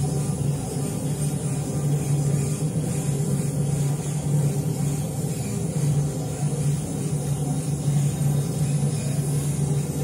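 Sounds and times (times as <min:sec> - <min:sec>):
machinery humming: 0:00.0 - 0:10.0.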